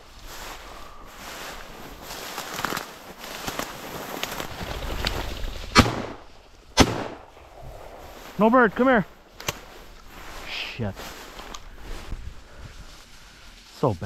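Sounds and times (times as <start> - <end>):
rustle of walking through cover: 0.0 - 6.7, 7.3 - 14.0
shotgun shots: 5.7 - 6.2, 6.8 - 7.3.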